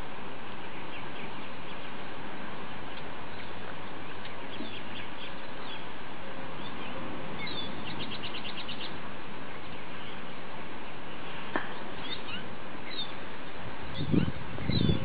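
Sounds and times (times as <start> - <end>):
background hiss: 0.0 - 15.0
small birds chirping: 0.4 - 15.0.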